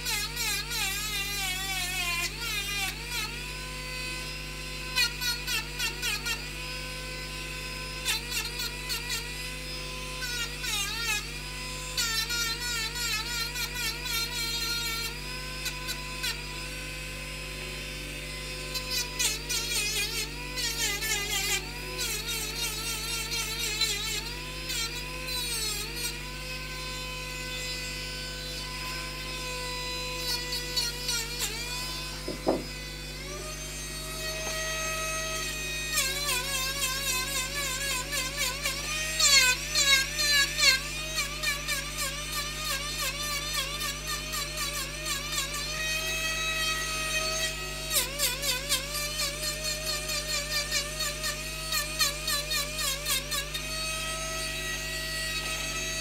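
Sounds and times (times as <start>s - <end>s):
rotary tool grinding wood: 0.0s - 56.0s
sharp knock: 32.2s - 32.7s.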